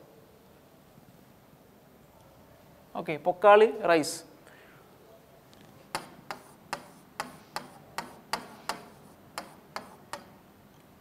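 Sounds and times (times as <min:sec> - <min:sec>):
pen tapping on writing board: 0:05.9 - 0:10.4.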